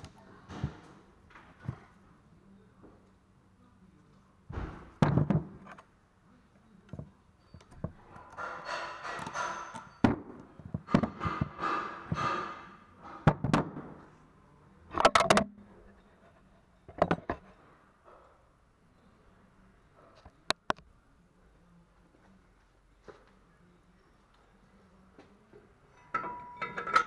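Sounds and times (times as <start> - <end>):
metal tools clanking on workbench: 8.2 - 10.0, 25.9 - 27.0.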